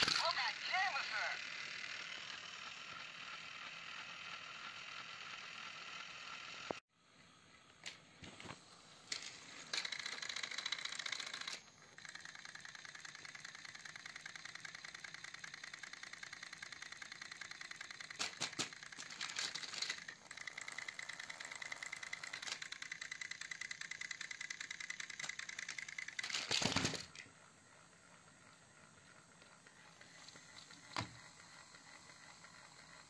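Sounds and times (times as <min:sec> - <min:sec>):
gears rattling: 0:00.0 - 0:00.8, 0:07.7 - 0:33.0
toy train motors whirring: 0:00.0 - 0:33.0.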